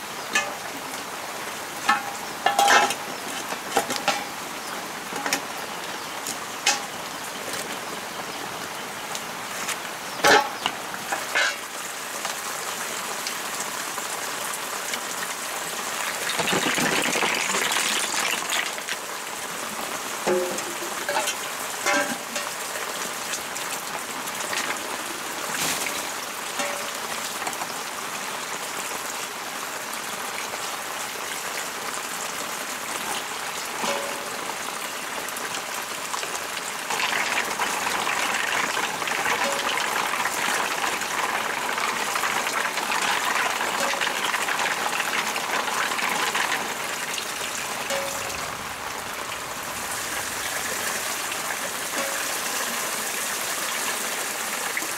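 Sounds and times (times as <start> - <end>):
water splashing into plastic basin: 16.1 - 19.0.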